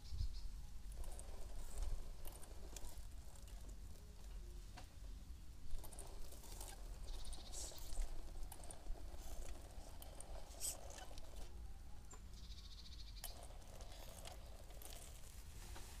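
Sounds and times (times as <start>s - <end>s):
toy car motor whirring: 0.8s - 4.6s, 5.6s - 15.6s.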